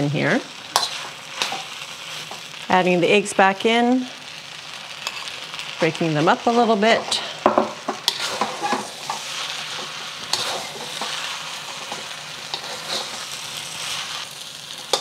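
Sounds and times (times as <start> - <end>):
rice sizzling in a wok: 0.0 - 15.0
utensil knocking and scraping wok: 0.7 - 2.5, 5.0 - 5.3, 6.9 - 15.0.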